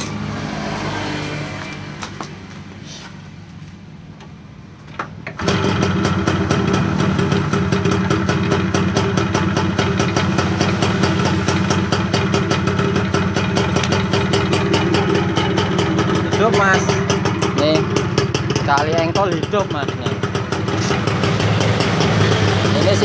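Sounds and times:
two-stroke motorcycle engine running: 5.4 - 23.0.

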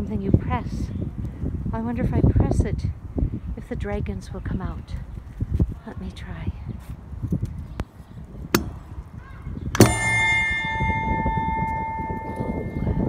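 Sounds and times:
bell ringing in long tone: 9.8 - 13.0.

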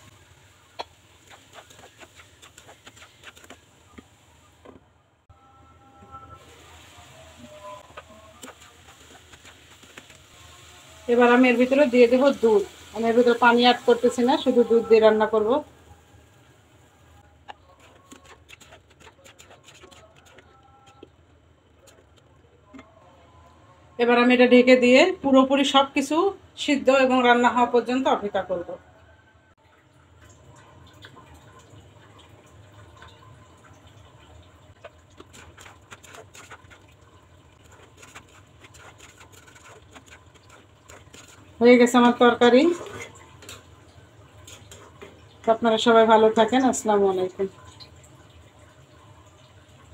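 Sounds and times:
curry bubbling in a wok: 0.0 - 4.3, 6.4 - 23.0, 30.0 - 49.9
spatula stirring: 0.0 - 4.8, 6.4 - 15.5, 17.2 - 23.4, 34.7 - 46.5.

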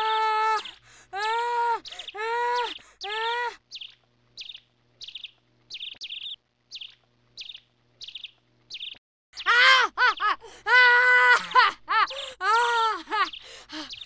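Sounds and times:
person wailing: 0.0 - 3.6, 9.4 - 13.8
small bird chirping: 1.8 - 9.0, 13.2 - 14.0.

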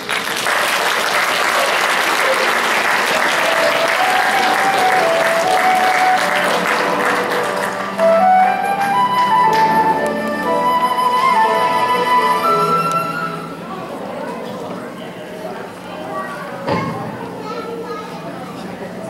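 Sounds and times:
audience applauding: 0.0 - 10.6
melodic instrumental tune: 3.5 - 13.7.

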